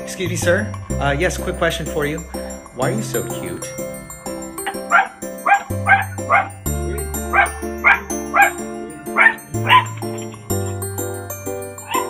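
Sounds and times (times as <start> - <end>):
background music: 0.0 - 12.0
small dog barking: 4.9 - 6.5, 9.2 - 9.9.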